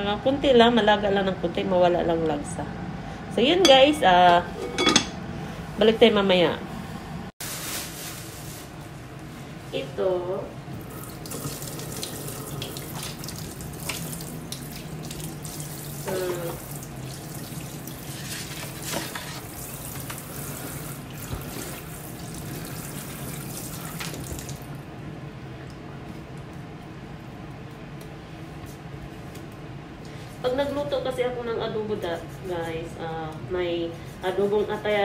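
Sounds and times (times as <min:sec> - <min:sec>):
faucet running into sink: 0:10.9 - 0:18.3.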